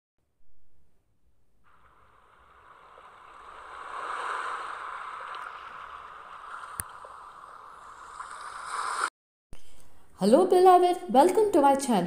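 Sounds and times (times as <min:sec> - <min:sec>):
rushing water-like noise: 0:01.7 - 0:09.1.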